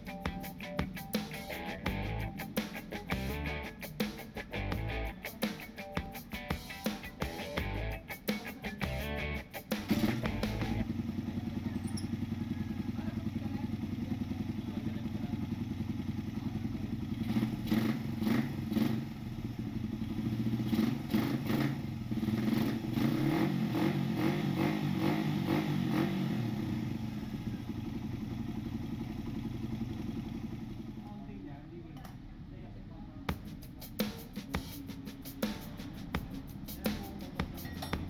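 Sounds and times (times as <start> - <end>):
motorcycle engine idling: 9.9 - 23.1, 26.4 - 31.3.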